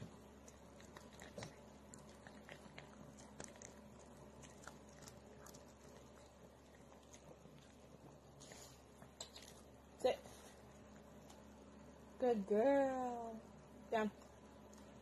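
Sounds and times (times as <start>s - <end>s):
dog chewing treats: 0.0s - 9.7s
faint low hum: 0.0s - 15.0s.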